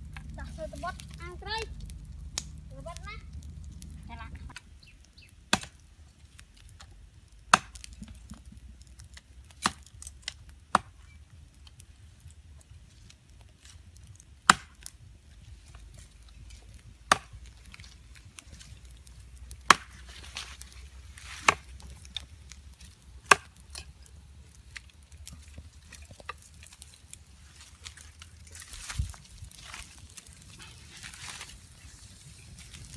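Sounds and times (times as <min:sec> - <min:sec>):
sharp wood cracks: 0:00.0 - 0:32.9.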